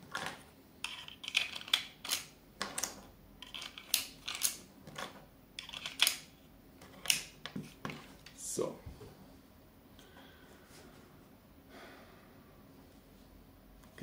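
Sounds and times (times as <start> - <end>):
crossbow bolts clicking and clattering: 0.8 - 6.3.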